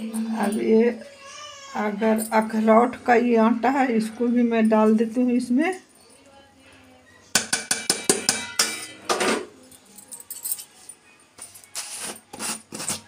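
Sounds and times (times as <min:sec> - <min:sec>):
metal dish tapping steel bowl: 0:07.4 - 0:09.4.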